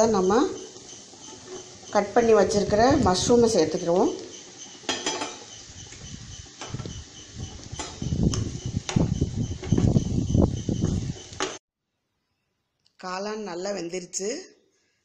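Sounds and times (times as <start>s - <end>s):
spatula scraping and knocking pan: 0.6s - 2.0s, 4.2s - 10.1s, 10.8s - 11.6s.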